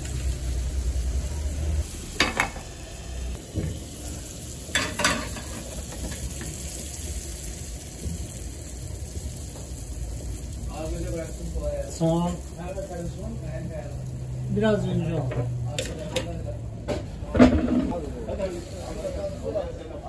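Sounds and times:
eggs and vegetables sizzling in a pan: 0.0s - 16.6s
metal pans clinking: 4.7s - 6.3s.

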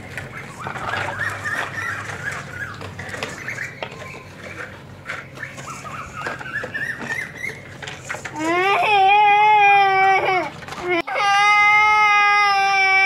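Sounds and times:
small birds chirping: 0.0s - 8.5s.

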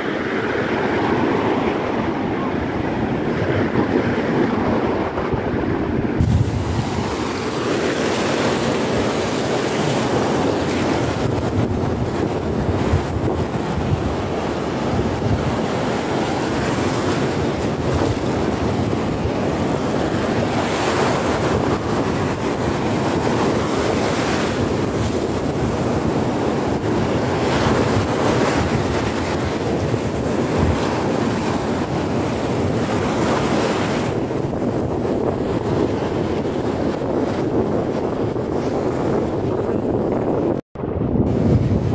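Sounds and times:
surf washing onto sand: 0.0s - 40.4s
wind buffeting microphone: 0.0s - 41.9s.

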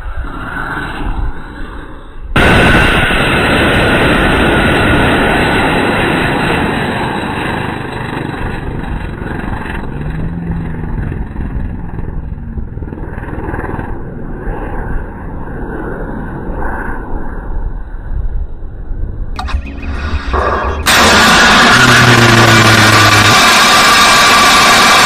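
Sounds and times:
rocket motor rushing: 2.4s - 9.6s, 19.4s - 25.0s.

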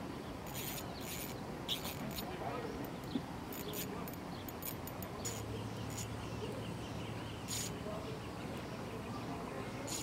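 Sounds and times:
background hiss: 0.0s - 10.0s
faint bird calls: 5.2s - 10.0s.

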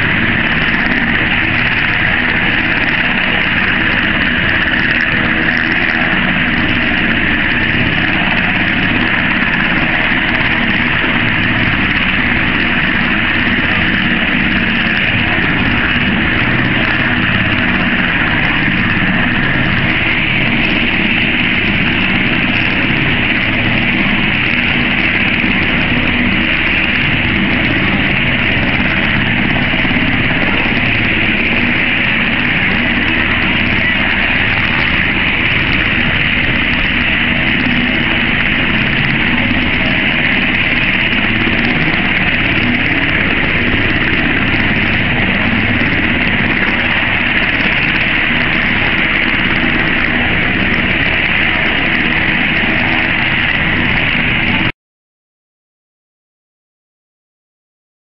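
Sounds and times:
helicopter engine and rotor drone: 0.0s - 54.8s.

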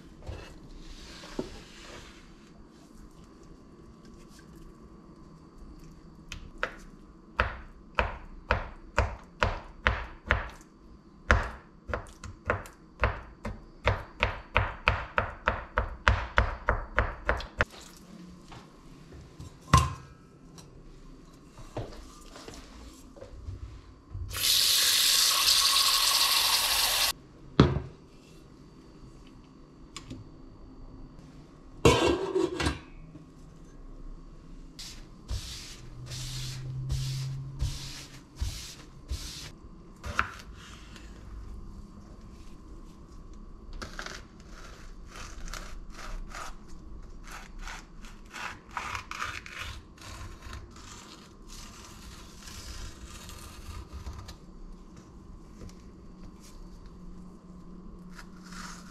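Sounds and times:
tap water running into a pot: 24.3s - 27.1s.

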